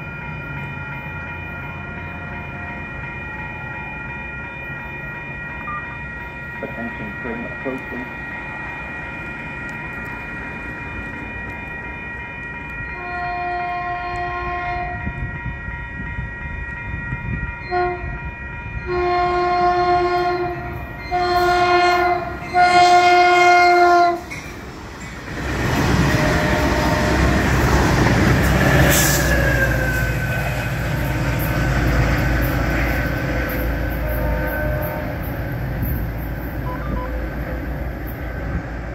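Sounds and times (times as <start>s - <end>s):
train air horn blasts: 12.9s - 15.2s, 17.6s - 24.3s, 26.0s - 27.6s, 28.8s - 30.1s, 34.0s - 35.3s.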